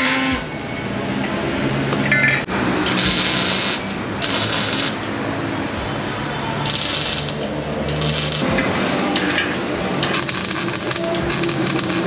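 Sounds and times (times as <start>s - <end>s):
cutting disc grinding metal: 2.9s - 5.1s, 6.7s - 8.4s, 9.2s - 12.0s.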